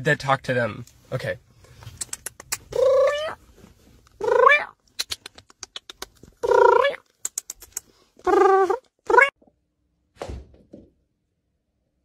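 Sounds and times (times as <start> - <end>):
quick sharp clicks: 2.0 - 2.6, 7.2 - 7.9
cat meowing: 2.8 - 3.4.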